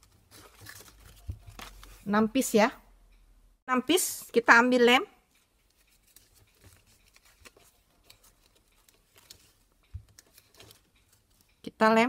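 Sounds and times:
paper rustling and ticking: 0:00.0 - 0:02.0, 0:05.3 - 0:11.6.

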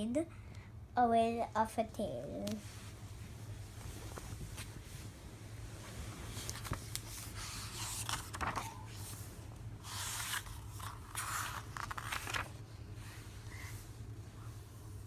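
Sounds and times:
book pages turning: 0:06.2 - 0:09.2, 0:09.8 - 0:12.6.

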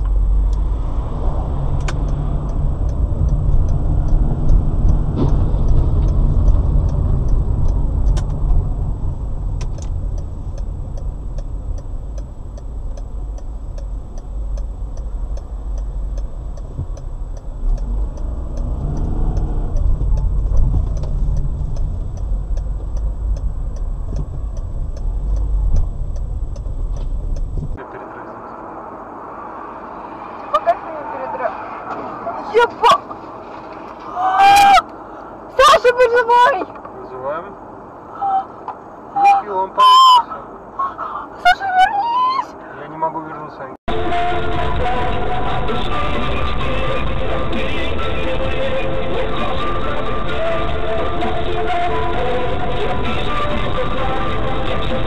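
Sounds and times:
light regular ticking: 0:00.0 - 0:00.7, 0:01.3 - 0:27.8
car road and engine noise: 0:00.0 - 0:55.0.

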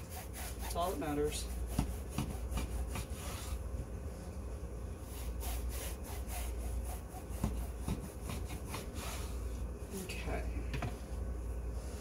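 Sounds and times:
bread knife sawing crusty loaf: 0:00.0 - 0:03.5, 0:05.1 - 0:09.3.

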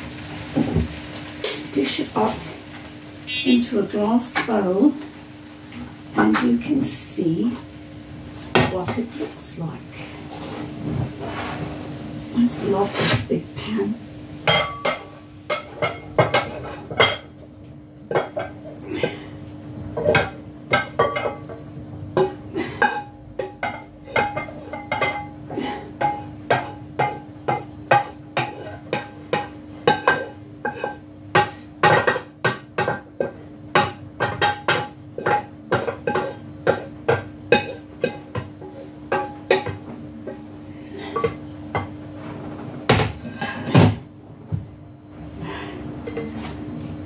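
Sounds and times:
utensil clanking in a metal pan: 0:08.5 - 0:09.7, 0:14.4 - 0:17.4, 0:18.1 - 0:19.2, 0:20.0 - 0:42.0.

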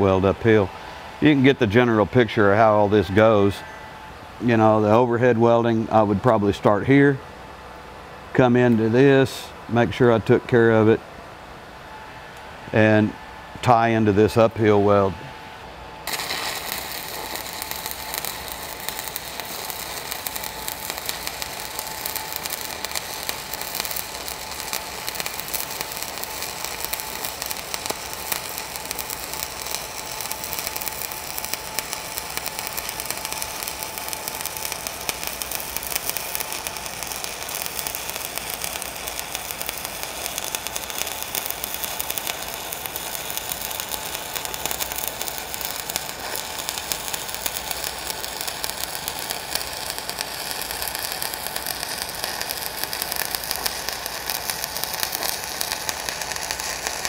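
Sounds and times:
welding arc crackling: 0:16.0 - 0:57.0.

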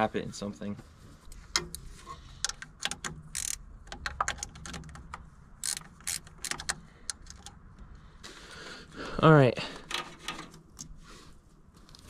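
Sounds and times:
small metal parts clinking: 0:01.5 - 0:07.7.

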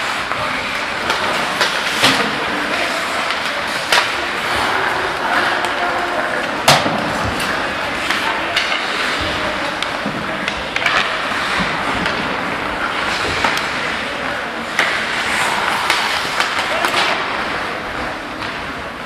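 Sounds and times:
skate blades scraping ice: 0:00.0 - 0:18.3
hockey sticks and puck clacking: 0:00.0 - 0:19.0.

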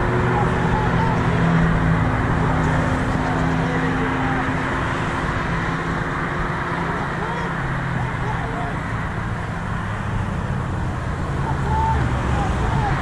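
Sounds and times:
cars passing: 0:00.0 - 0:13.0
engine hum: 0:00.0 - 0:13.0.

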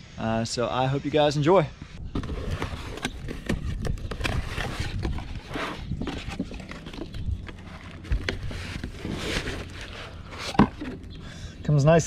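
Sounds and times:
cardboard rustling and scraping: 0:02.0 - 0:11.1.

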